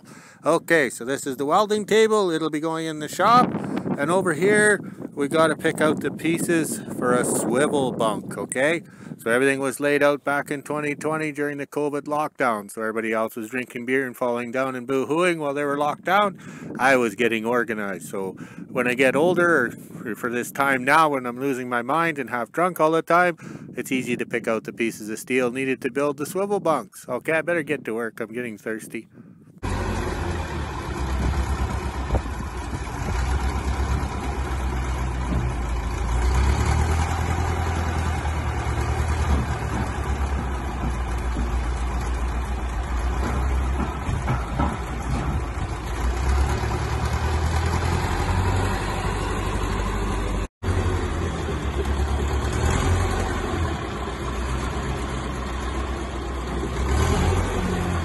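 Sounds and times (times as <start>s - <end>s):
diesel engine running: 29.6s - 58.0s.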